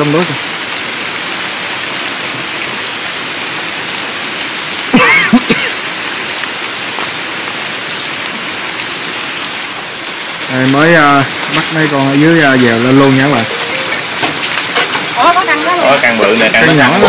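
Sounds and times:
steady rain falling: 0:00.0 - 0:17.0
call rising and falling in pitch: 0:13.2 - 0:14.5.

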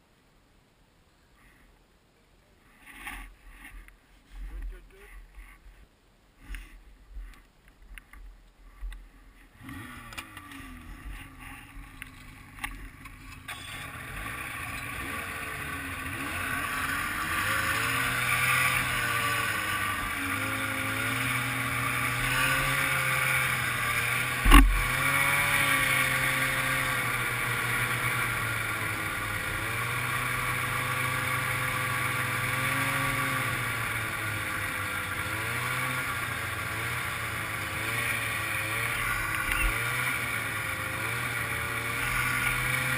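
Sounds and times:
snowmobile engine revving: 0:09.5 - 0:42.9
sharp thump: 0:24.4 - 0:24.9.

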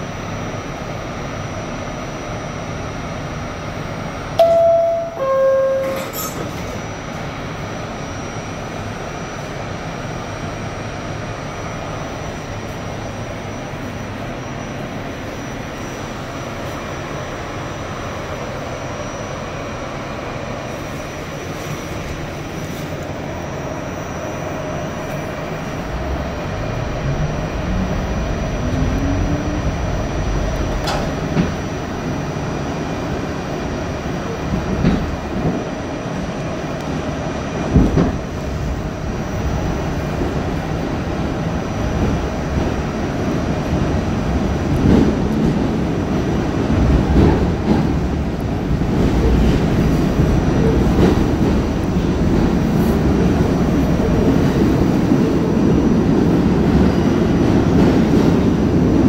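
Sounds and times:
subway car hum: 0:00.0 - 0:59.0
traction motors whine: 0:00.3 - 0:35.3
two-tone door chime: 0:04.4 - 0:06.9.

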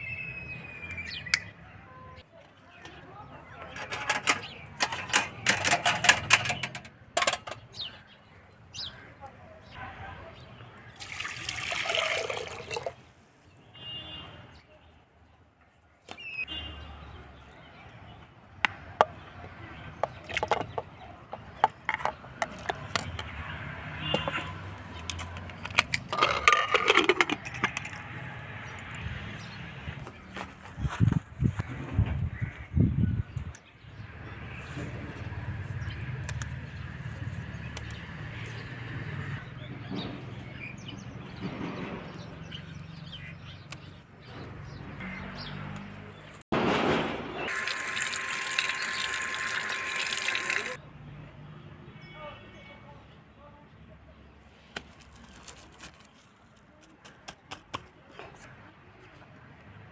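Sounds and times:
pieces dropping into metal pot: 0:03.7 - 0:07.6, 0:25.1 - 0:28.0
metal lid clattering shut: 0:03.8 - 0:07.6
small birds chirping: 0:32.4 - 0:46.4.

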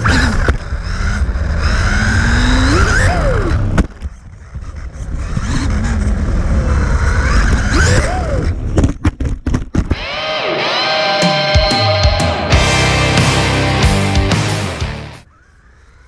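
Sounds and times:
low rumble of toy truck: 0:00.0 - 0:09.3.

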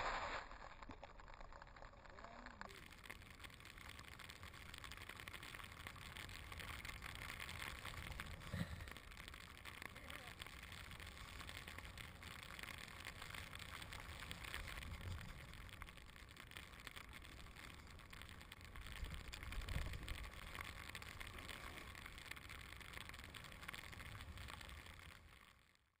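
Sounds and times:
snowboard hissing through powder: 0:00.0 - 0:00.6
wind rumbling on microphone: 0:18.0 - 0:22.0.

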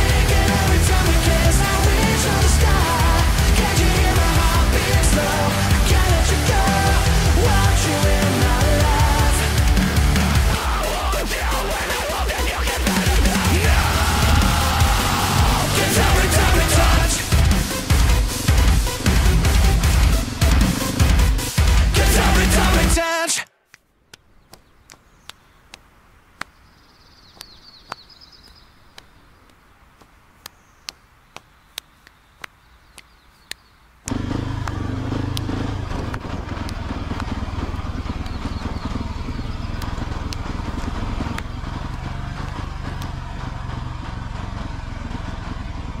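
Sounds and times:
motorcycle engine running: 0:00.0 - 0:10.9, 0:12.9 - 0:22.9, 0:34.1 - 0:46.0
sharp clicks: 0:23.7 - 0:26.6, 0:27.3 - 0:43.5
wind and road noise: 0:24.3 - 0:46.0.

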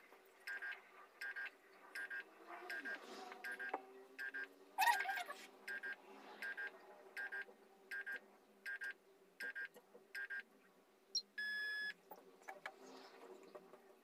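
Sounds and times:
long steady beep: 0:00.5 - 0:04.5, 0:11.2 - 0:12.0
phone keypad touch-tone beeps: 0:00.5 - 0:04.5, 0:05.7 - 0:10.4, 0:11.2 - 0:12.0.

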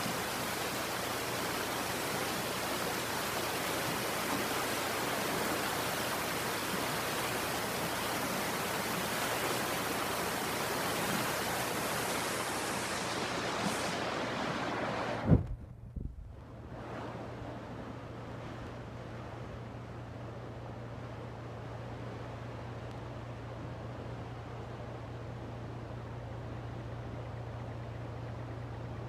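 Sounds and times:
floodwater rushing: 0:00.0 - 0:15.4.

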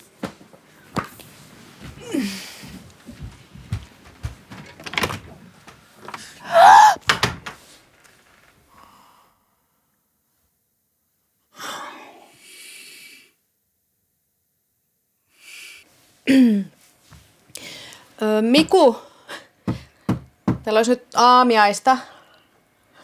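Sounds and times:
person gasping: 0:02.0 - 0:02.8, 0:06.2 - 0:07.0, 0:17.6 - 0:18.0
knocks and thuds: 0:07.0 - 0:07.6, 0:19.7 - 0:20.7.

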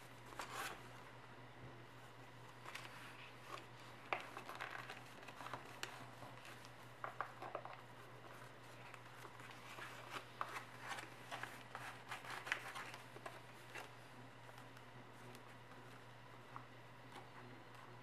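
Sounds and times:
faint low hum: 0:00.0 - 0:18.0
paper crinkling as folded: 0:02.5 - 0:16.0.

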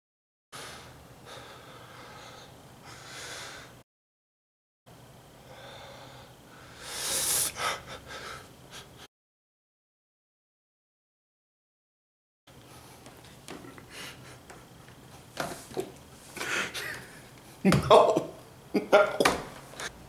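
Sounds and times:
man breathing heavily and gasping: 0:00.6 - 0:03.8, 0:05.5 - 0:09.0, 0:16.4 - 0:17.3.

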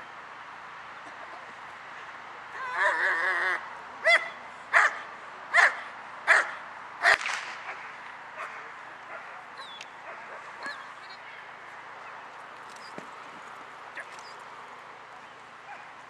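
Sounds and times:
dog barking: 0:04.0 - 0:07.8, 0:08.4 - 0:10.9, 0:15.7 - 0:15.9.

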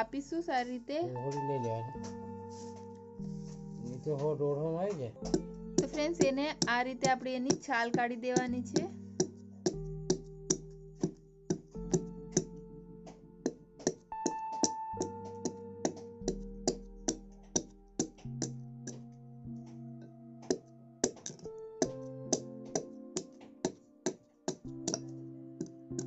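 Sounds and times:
electronic keyboard chords: 0:00.0 - 0:26.0
clicking beat: 0:05.2 - 0:19.1, 0:20.4 - 0:26.0.

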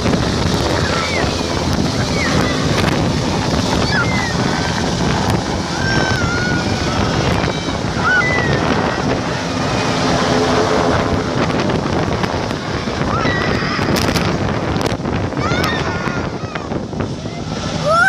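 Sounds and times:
helicopter rotor and engine: 0:00.0 - 0:18.0
wind buffeting microphone: 0:00.0 - 0:18.0.

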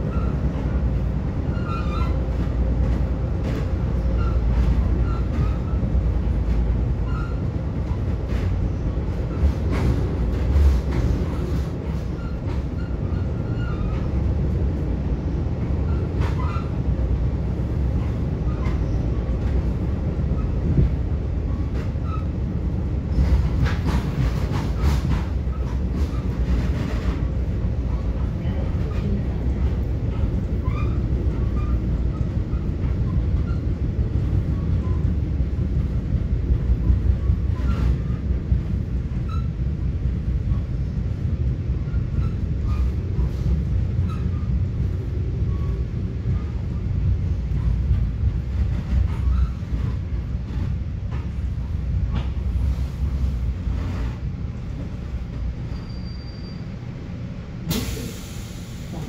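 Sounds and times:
train wheels rumbling on rails: 0:00.0 - 0:59.0
brief hiss: 0:57.7 - 0:59.0.

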